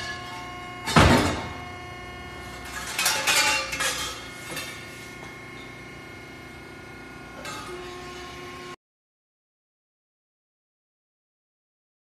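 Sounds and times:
steady machine hum: 0.0 - 8.8
metal clanking: 2.6 - 4.9.

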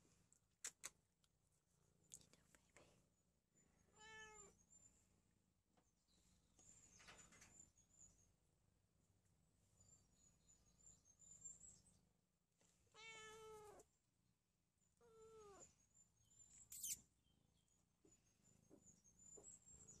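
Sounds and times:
cat meowing: 4.0 - 4.6, 13.0 - 13.8, 15.0 - 15.7.

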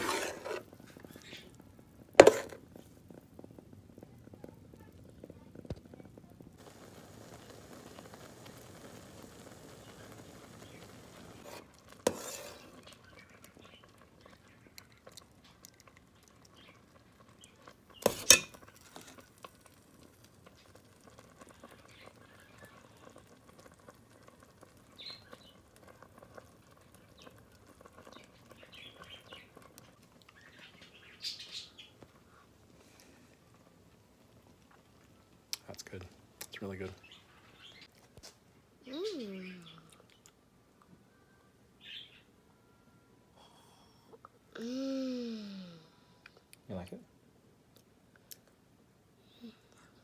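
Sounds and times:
person sipping: 0.0 - 0.8
metal spoon stirring in pot: 0.0 - 1.6, 2.2 - 2.7, 11.4 - 29.8.

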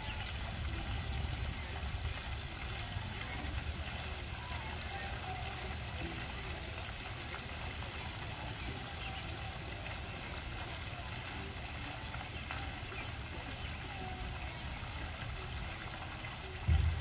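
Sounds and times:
fountain water splashing: 0.0 - 17.0.

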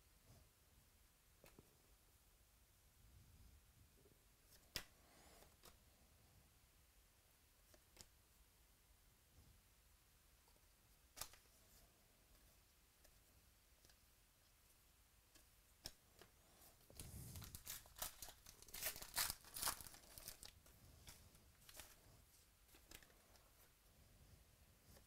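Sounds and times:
wrapper crinkling and tearing: 17.0 - 22.0.

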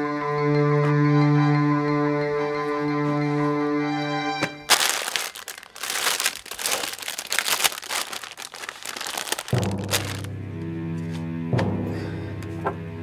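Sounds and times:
plastic bag crinkling: 4.7 - 10.3.

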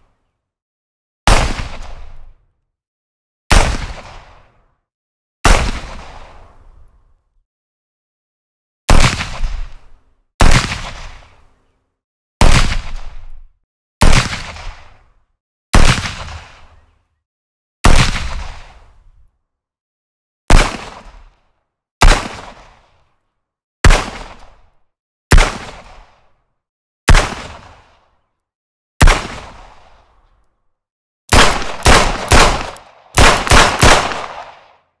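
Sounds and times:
revolver gunshots: 31.3 - 34.8.

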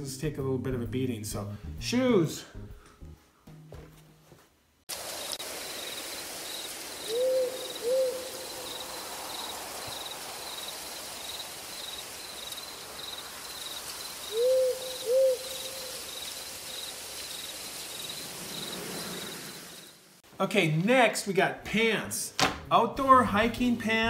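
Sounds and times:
even hiss: 4.9 - 20.2
insect chirping: 4.9 - 20.2
owl hooting: 7.0 - 8.9, 14.2 - 16.2.

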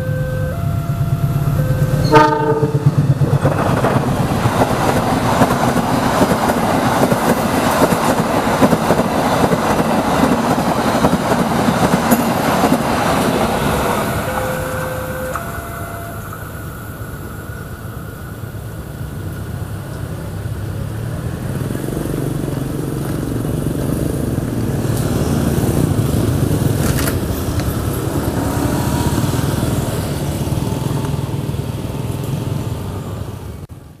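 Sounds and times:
motorcycle engine: 21.3 - 33.1.

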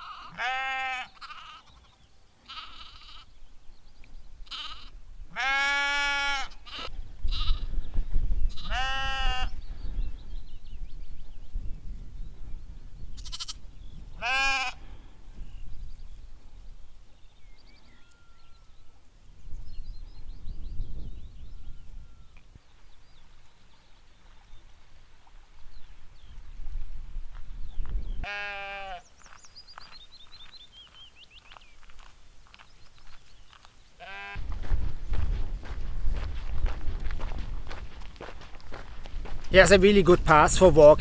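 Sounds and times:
sheep bleating: 0.0 - 3.3, 4.5 - 7.7, 8.5 - 9.5, 13.2 - 13.6, 14.2 - 14.8, 28.2 - 29.1, 34.0 - 34.4
low rumble of wind: 1.3 - 41.0.

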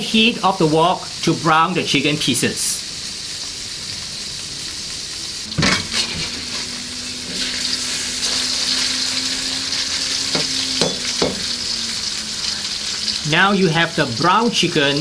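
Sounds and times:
chicken sizzling in oil: 0.0 - 15.0
metal spatula scraping wok: 5.6 - 10.4.

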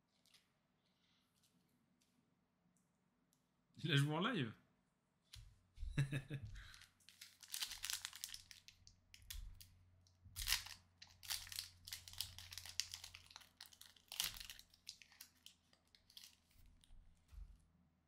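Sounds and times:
foil wrapper crinkling: 6.7 - 9.8, 10.4 - 16.9
foil wrapper tearing: 7.1 - 8.8, 10.4 - 16.6.

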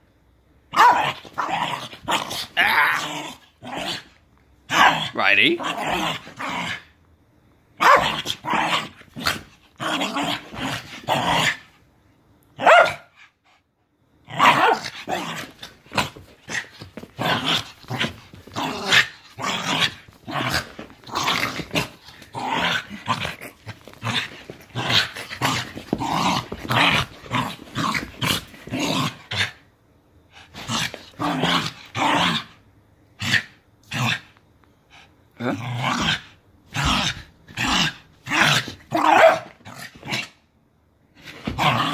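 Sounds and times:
small dog barking: 0.7 - 1.5, 7.8 - 8.2, 12.6 - 13.1, 14.4 - 14.8, 38.9 - 39.6
small dog growling: 1.0 - 4.2, 8.0 - 11.7, 14.3 - 29.6, 35.0 - 40.4, 41.2 - 41.9.

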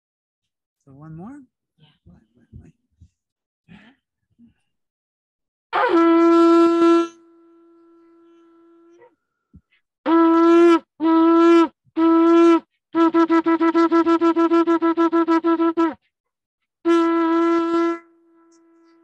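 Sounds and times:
shofar blasts: 5.7 - 9.1, 10.1 - 16.0, 16.8 - 19.0.

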